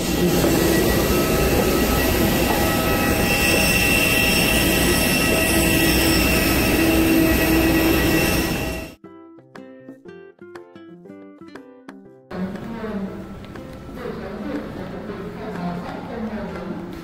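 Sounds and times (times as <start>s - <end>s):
aircraft turbine whine and rumble: 0.0s - 9.0s.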